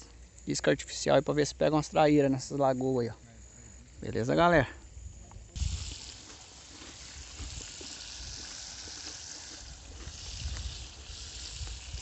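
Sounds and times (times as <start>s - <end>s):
steady outdoor hiss: 0.0s - 12.0s
wind gusting on microphone: 9.7s - 12.0s.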